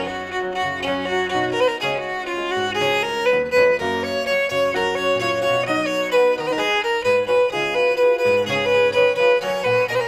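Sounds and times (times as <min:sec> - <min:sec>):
fiddle playing a tune: 0:00.0 - 0:10.0.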